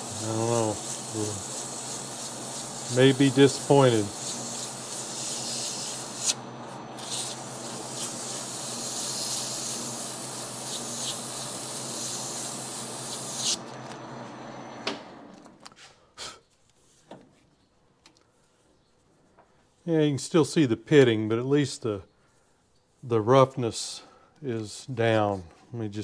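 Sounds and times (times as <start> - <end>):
abrasive cloth sanding hiss: 0.0 - 13.6
lathe humming: 0.0 - 14.8.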